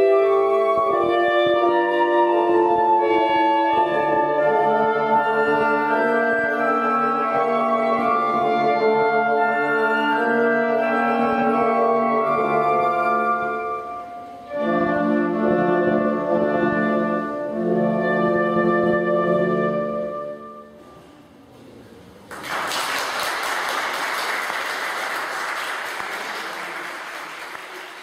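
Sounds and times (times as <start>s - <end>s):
wind quintet playing chords: 0.0s - 20.8s
audience applause: 22.3s - 28.0s.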